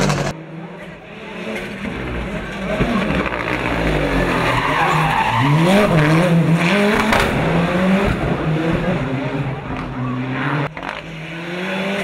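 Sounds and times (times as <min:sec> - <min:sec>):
race car engine: 0:00.0 - 0:12.0.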